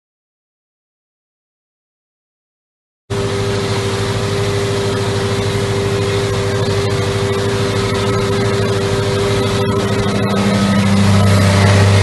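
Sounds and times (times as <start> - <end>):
steady whine: 3.1 - 12.0
tractor engine running: 3.1 - 12.0.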